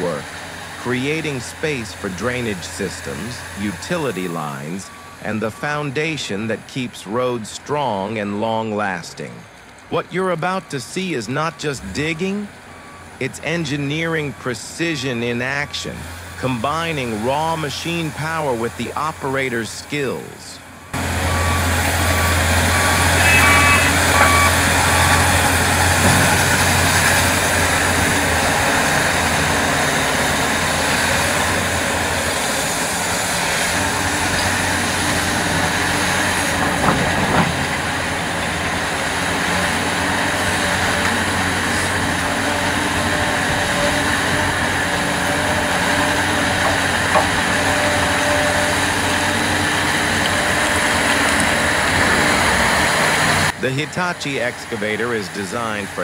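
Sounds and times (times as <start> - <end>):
excavator engine and hydraulics: 0.0 - 56.0
reversing alarm beeping: 2.4 - 6.5, 20.8 - 28.7.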